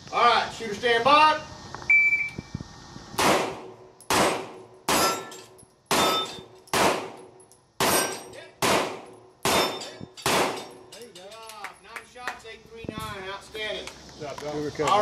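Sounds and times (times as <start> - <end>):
pistol shots: 3.2 - 10.8
steel target ringing: 4.9 - 6.6, 9.4 - 10.9.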